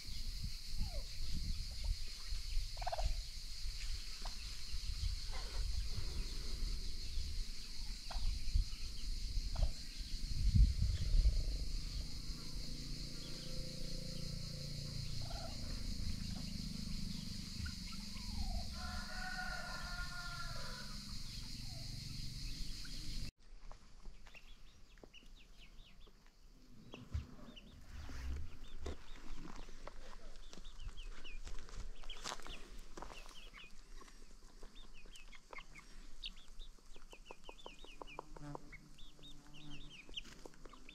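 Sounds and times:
loud low rumble: 10.1 - 18.7
chickens clucking: 33.0 - 38.9.

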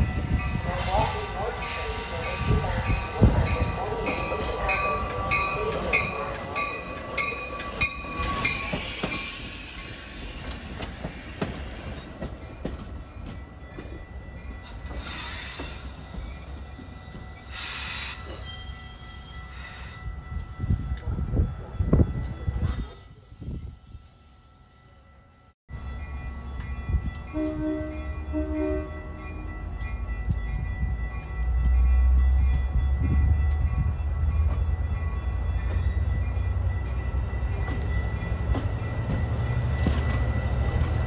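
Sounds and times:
train wheels and brakes squealing: 0.8 - 12.8, 14.6 - 21.4, 22.5 - 25.1.

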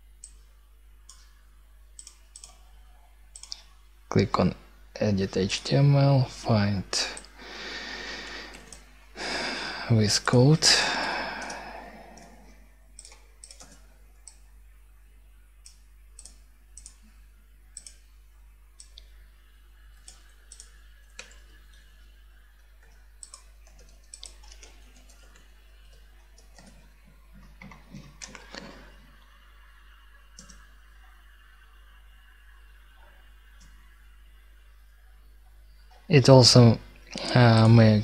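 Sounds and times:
steady low hum: 0.0 - 38.0
computer mouse clicking: 0.2 - 0.5, 1.1 - 1.3, 2.0 - 2.7, 3.3 - 3.7, 8.5 - 8.9, 11.4 - 12.4, 13.0 - 14.4, 15.6 - 17.1, 17.8 - 18.0, 18.8 - 19.1, 19.9 - 21.9, 22.7 - 28.7, 30.4 - 30.7
computer keyboard keys clicking: 2.0 - 2.6, 3.4 - 3.6, 13.0 - 14.4, 15.6 - 17.0, 17.8 - 18.0, 20.0 - 21.8, 22.8 - 26.8, 30.4 - 30.6.

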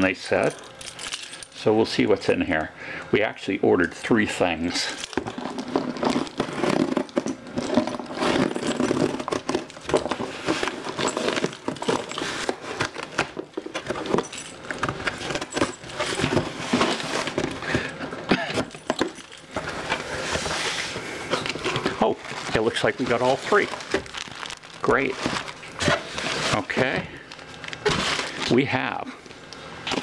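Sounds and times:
keys jangling: 0.4 - 1.6, 18.6 - 19.5
cardboard scraping and clicks: 27.8 - 28.5.

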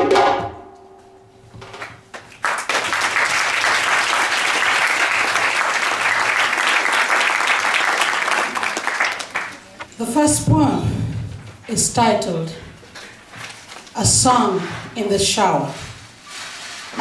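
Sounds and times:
audience applauding: 1.8 - 9.9.

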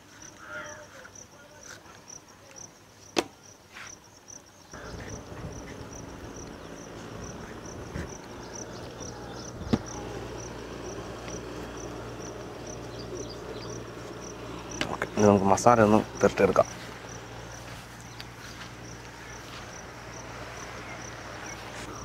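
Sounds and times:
insects chirping: 0.0 - 22.0
low steady hum: 4.8 - 22.0.

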